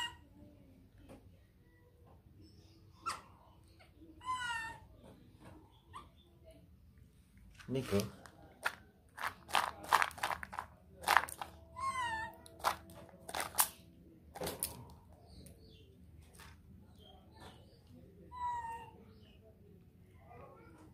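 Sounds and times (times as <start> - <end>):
baby monkey squealing: 3.0 - 3.4, 4.2 - 4.8, 11.8 - 12.4
seeds pattering onto ground: 7.5 - 11.6, 12.4 - 13.8
seeds rattling in a plastic bowl: 7.6 - 13.8.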